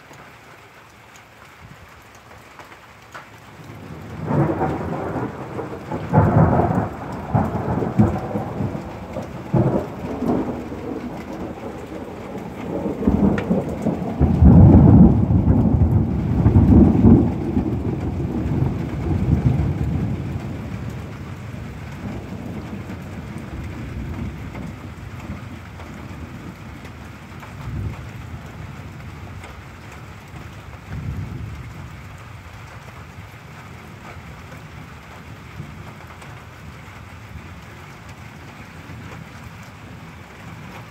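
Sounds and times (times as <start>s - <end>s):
steady rain hiss: 0.0s - 40.9s
thunder rolling: 3.8s - 29.4s.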